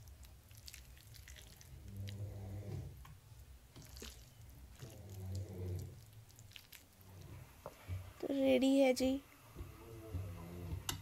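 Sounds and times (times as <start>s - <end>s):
wet batter squishing by hand: 0.0s - 3.0s, 3.7s - 8.1s.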